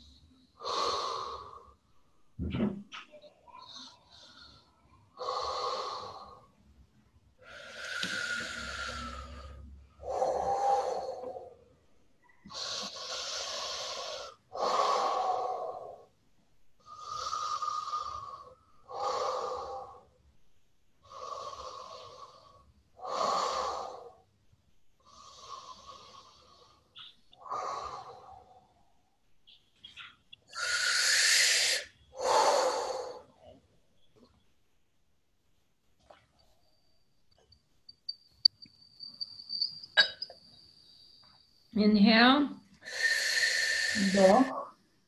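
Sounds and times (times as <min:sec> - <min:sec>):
woman breathing deeply: 0:00.0 - 0:02.1, 0:03.5 - 0:06.6, 0:07.4 - 0:11.6, 0:12.2 - 0:16.2, 0:16.8 - 0:20.2, 0:21.0 - 0:24.3, 0:25.0 - 0:29.1, 0:30.5 - 0:33.5, 0:42.8 - 0:44.7.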